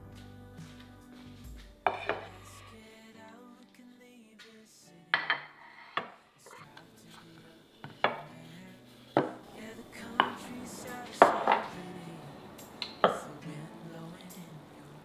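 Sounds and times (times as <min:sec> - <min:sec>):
faint background music: 0:00.0 - 0:15.0
dishes knocking on stone countertop: 0:01.8 - 0:02.3.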